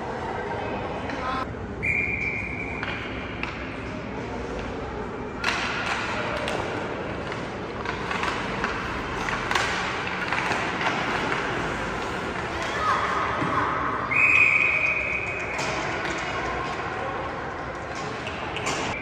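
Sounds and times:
arena crowd noise: 0.0s - 19.0s
hockey sticks and puck knocking: 2.8s - 3.9s, 5.4s - 13.6s, 15.2s - 19.0s.

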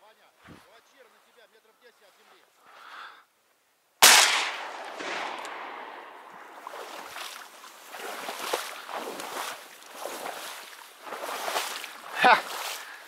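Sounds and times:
shotgun shot: 4.0s - 6.8s
rustling in grass: 5.0s - 13.0s.

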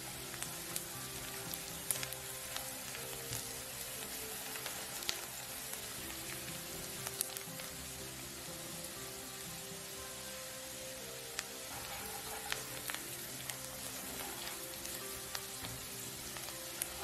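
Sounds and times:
garlic and onion sizzling in butter: 0.0s - 17.0s
spatula scraping a pan: 11.7s - 13.0s.

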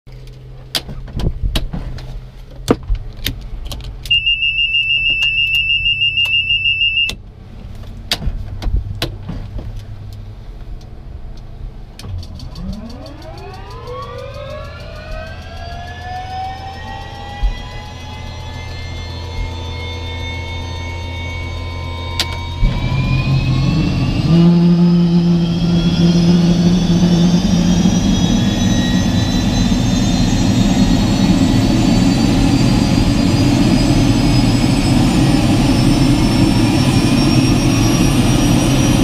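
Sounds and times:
high pulsing warning tone: 4.1s - 7.2s, 12.3s - 39.0s
turbine whine rising in pitch: 11.9s - 39.0s.

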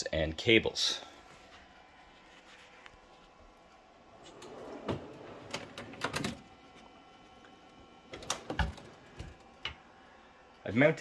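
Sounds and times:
shelf rolling on drawer slides: 4.0s - 6.6s.

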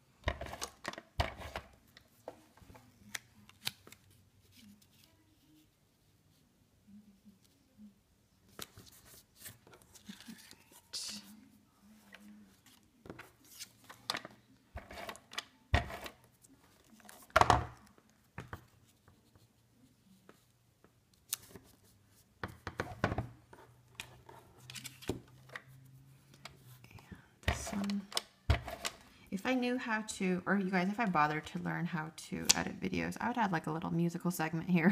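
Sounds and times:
paper rustling and crinkling: 8.5s - 15.2s.

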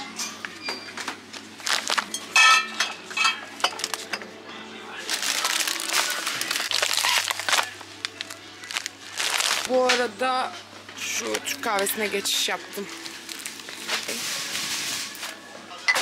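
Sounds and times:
plastic shrink-wrap crinkling: 1.4s - 2.2s, 3.7s - 4.1s, 5.0s - 10.1s, 11.7s - 15.4s.

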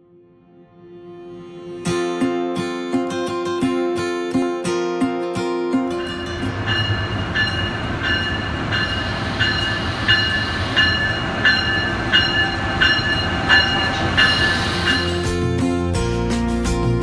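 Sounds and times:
locomotive bell ringing: 5.9s - 15.6s
low rumble of idling trains: 6.0s - 15.6s.

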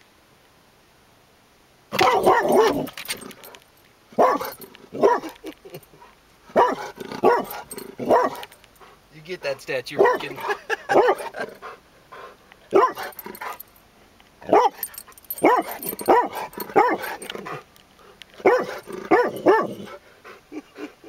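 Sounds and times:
dog barking: 2.0s - 2.9s, 4.2s - 5.4s, 6.5s - 8.5s, 9.9s - 11.5s, 12.7s - 13.6s, 14.4s - 17.6s, 18.4s - 20.0s.

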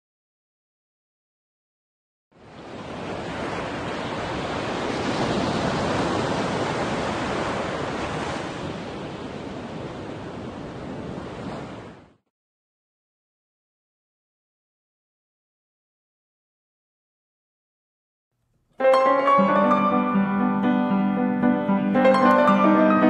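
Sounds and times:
sea waves washing: 2.4s - 12.2s.

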